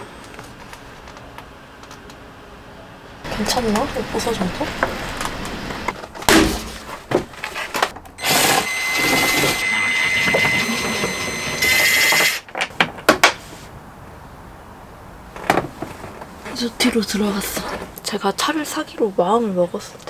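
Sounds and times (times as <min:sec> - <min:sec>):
sharp crack: 0:06.2 - 0:06.9
cordless drill whining: 0:08.2 - 0:12.4.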